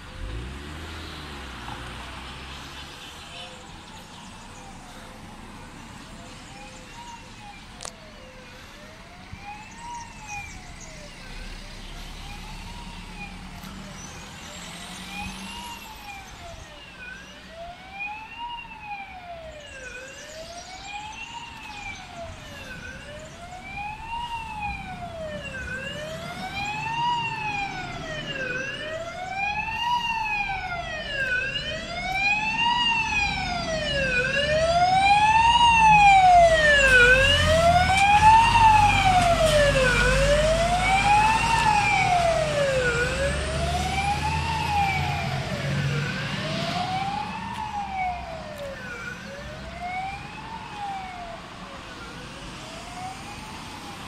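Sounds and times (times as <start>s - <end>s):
fire engine siren wailing: 3.4s - 54.0s
truck engine rumble: 22.4s - 51.0s.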